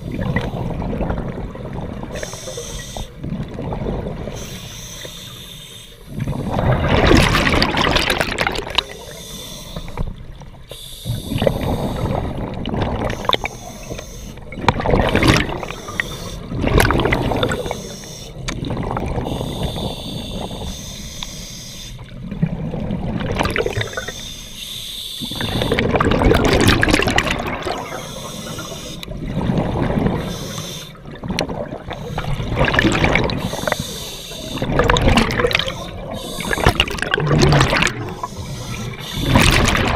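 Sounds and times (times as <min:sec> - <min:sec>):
scuba regulator air bubbling: 0:06.1 - 0:10.0, 0:10.8 - 0:21.1, 0:22.5 - 0:39.9.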